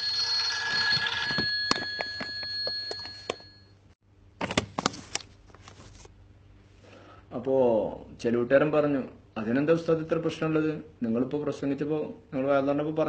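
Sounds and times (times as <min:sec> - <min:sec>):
phone ringtone: 0:00.0 - 0:03.8.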